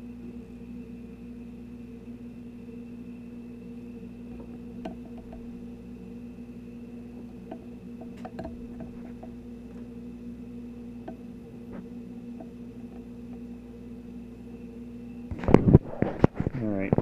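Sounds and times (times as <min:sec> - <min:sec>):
steady hum: 0:00.0 - 0:17.0
small clicks and taps on a press: 0:07.4 - 0:09.8.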